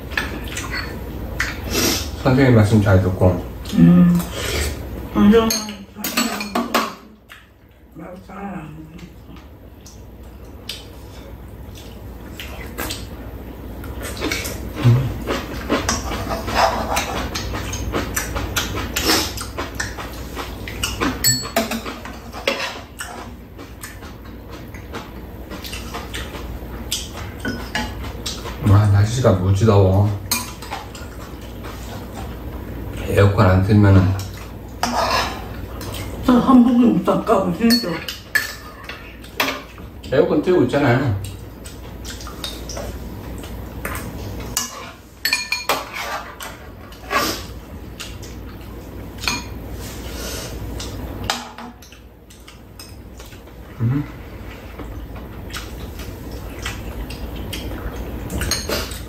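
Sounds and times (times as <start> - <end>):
utensils clinking against dishes: 0.1 - 1.6, 5.3 - 7.1, 15.3 - 24.1, 25.6 - 28.6, 30.1 - 32.4, 34.1 - 36.1, 37.6 - 39.8, 43.9 - 48.2, 49.2 - 49.6, 58.3 - 59.0
spoons scraping and clinking dishes: 15.6 - 19.3, 20.8 - 23.3, 34.8 - 36.1, 44.5 - 47.5.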